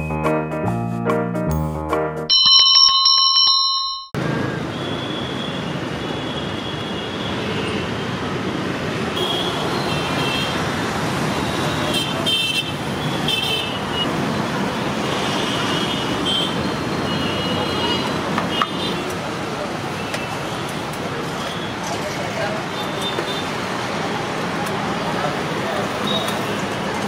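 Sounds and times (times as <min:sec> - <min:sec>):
bright ringing chime: 0:02.3 - 0:04.2
city street traffic: 0:02.3 - 0:27.0.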